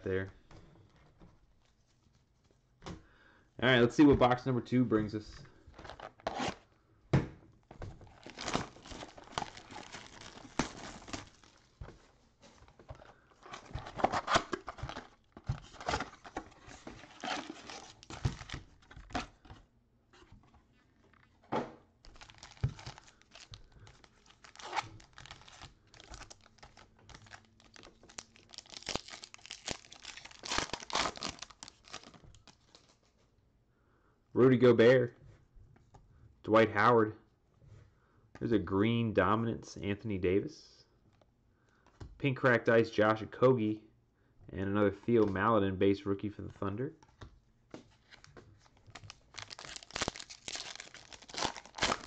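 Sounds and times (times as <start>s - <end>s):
plastic and foil crinkling: 8.0s - 19.3s, 22.1s - 33.1s, 48.0s - 52.0s.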